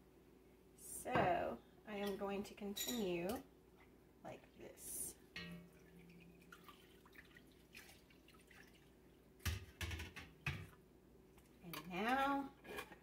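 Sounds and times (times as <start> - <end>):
liquid dripping and trickling: 5.4 - 9.2.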